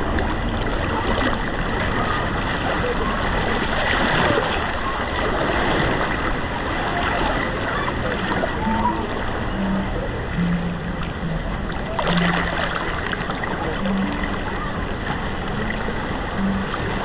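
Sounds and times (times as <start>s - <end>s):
water rushing and splashing: 0.0s - 17.0s.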